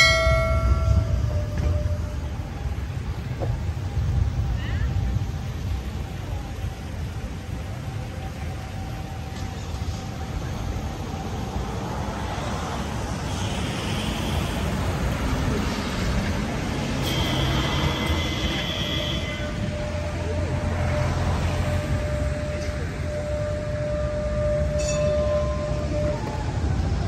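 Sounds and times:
traffic rumble: 0.0 - 27.0.

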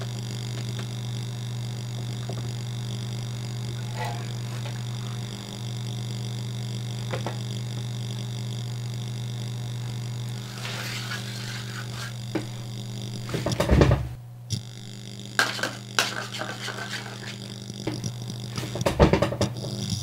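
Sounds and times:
steady low drone: 1.8 - 6.0
rubbing and scraping: 3.8 - 4.9, 10.4 - 12.3, 15.4 - 17.6.

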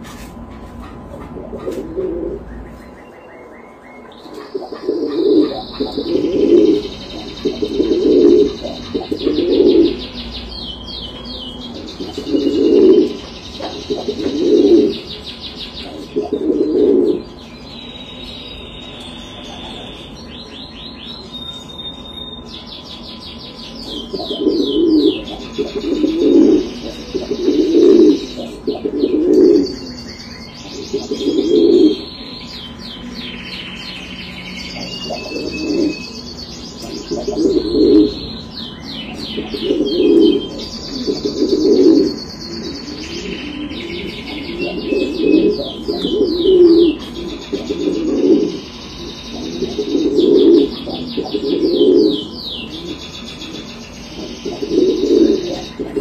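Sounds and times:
pigeons cooing: 0.0 - 17.4, 19.3 - 20.1, 23.8 - 30.1, 30.7 - 33.2, 34.4 - 56.0
high-pitched bird chirping: 1.5 - 56.0.

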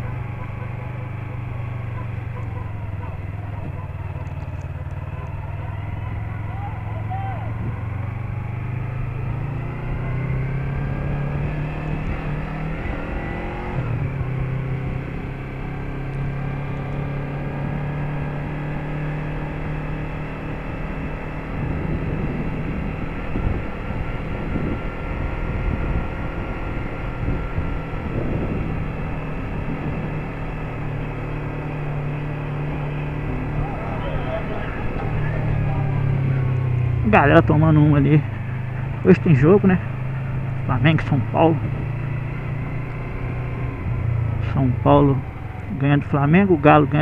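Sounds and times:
motorcycle engine accelerating: 0.0 - 47.0
wind rumble on microphone: 7.5 - 8.2, 21.4 - 30.9, 31.9 - 42.8.

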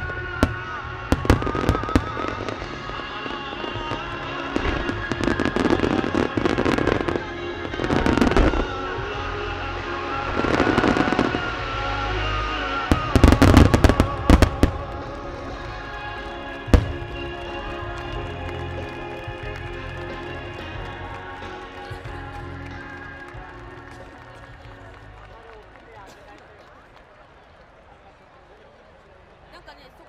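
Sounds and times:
fireworks popping and crackling: 0.0 - 8.8, 10.2 - 11.7, 12.9 - 27.2
music playing: 0.0 - 26.4
loud sharp firework bangs: 12.9 - 22.1.

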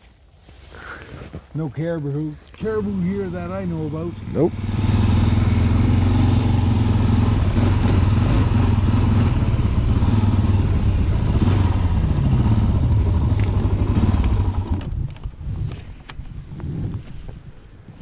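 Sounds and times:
quad engine running: 2.6 - 15.4.

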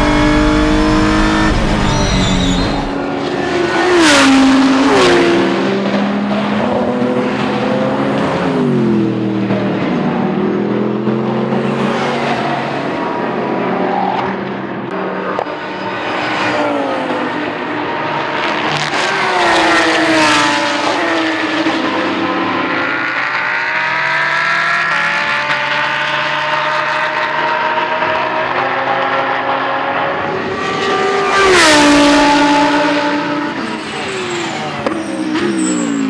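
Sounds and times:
engine revving through gear changes: 0.0 - 3.0
race cars passing: 0.0 - 36.0.

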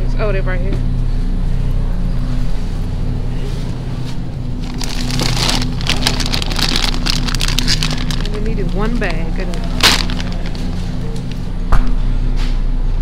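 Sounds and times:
steady low hum: 0.0 - 13.0
plastic bag crinkling: 4.6 - 11.4.

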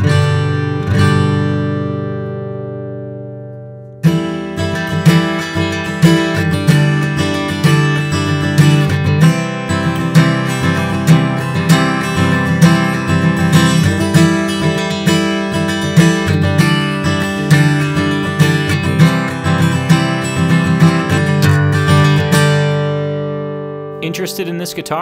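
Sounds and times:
acoustic guitar strumming: 0.0 - 25.0.

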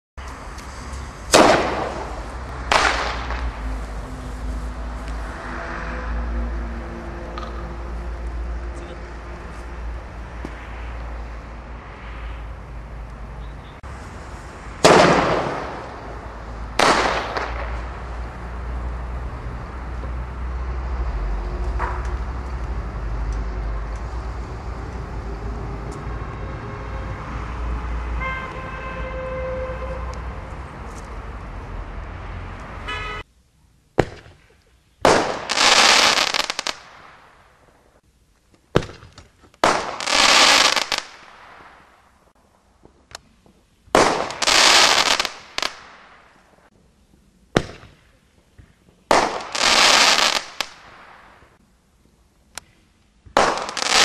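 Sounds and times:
crackling artillery shells: 0.5 - 5.2, 14.3 - 20.2, 53.2 - 54.0.

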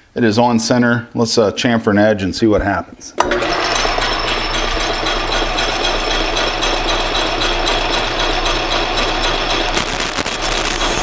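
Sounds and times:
metal lathe running: 3.2 - 11.0.

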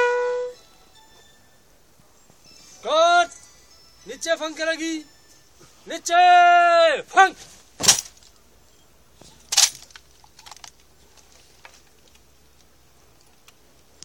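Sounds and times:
person shouting a command: 2.8 - 3.4, 5.9 - 7.4
sharp cracks: 7.8 - 8.4, 9.5 - 10.9.

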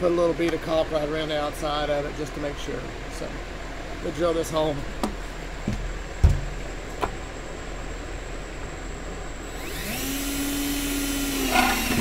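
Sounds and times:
thump: 5.7 - 6.5
cordless drill cutting plastic: 9.5 - 12.0.

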